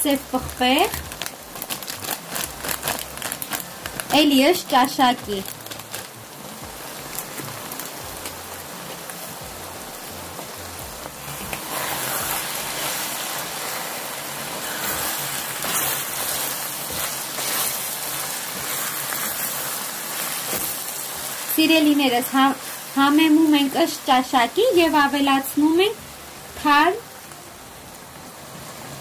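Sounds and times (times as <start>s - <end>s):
meat sizzling in a pan: 0.0s - 29.0s
wooden spatula stirring: 11.3s - 21.4s.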